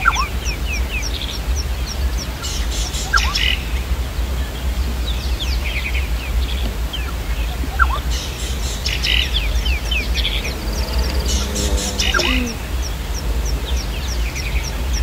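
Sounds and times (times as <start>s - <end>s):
birds chirping: 0.0s - 15.0s
birds twittering: 0.0s - 15.0s
low rumble: 3.5s - 15.0s.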